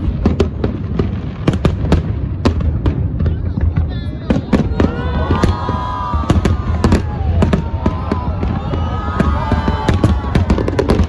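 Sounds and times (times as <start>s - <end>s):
fireworks bangs: 0.0s - 11.0s
whistling fireworks: 0.0s - 11.0s.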